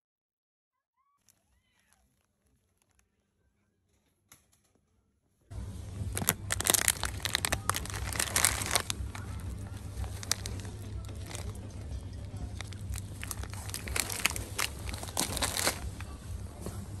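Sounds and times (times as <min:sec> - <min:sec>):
steady low hum: 0:05.5 - 0:17.0
plastic bag crinkling: 0:05.6 - 0:16.7.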